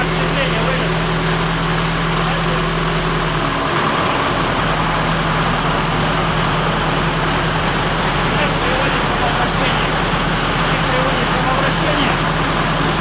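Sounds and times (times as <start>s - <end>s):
diesel engine running: 0.0s - 13.0s
high whine: 5.4s - 13.0s.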